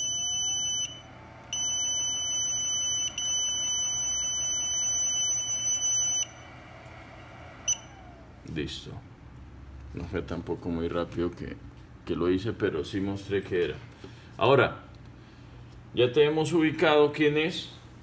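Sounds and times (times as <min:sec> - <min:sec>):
high-pitched electronic buzzer tone: 0:00.0 - 0:06.4.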